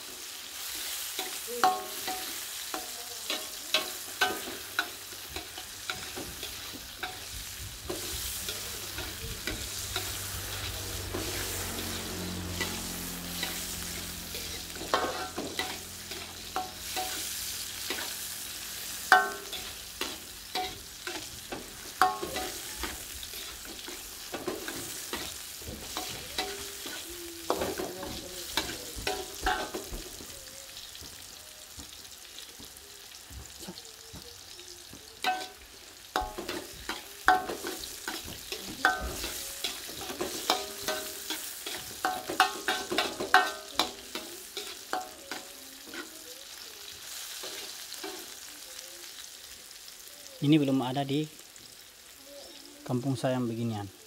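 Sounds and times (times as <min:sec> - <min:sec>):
vegetables sizzling in a wok: 0:00.0 - 0:54.0
metal spatula clanking on pan: 0:01.2 - 0:07.3, 0:13.4 - 0:18.3, 0:19.1 - 0:30.2, 0:35.2 - 0:46.1.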